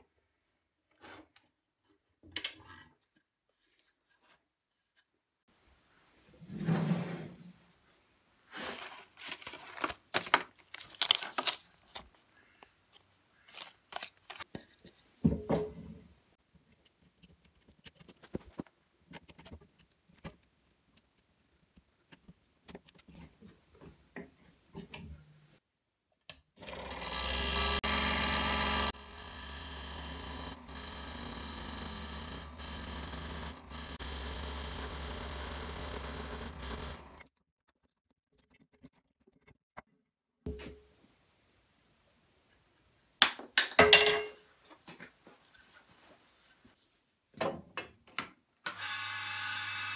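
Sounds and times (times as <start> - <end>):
scroll saw running: 26.6 - 37.2, 48.8 - 49.9.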